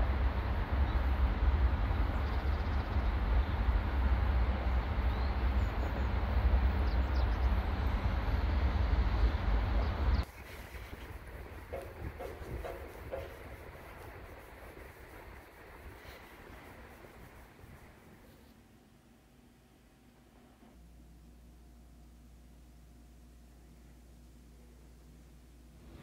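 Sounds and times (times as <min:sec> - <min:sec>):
low city rumble: 0:00.0 - 0:26.0
hiss: 0:10.3 - 0:18.3.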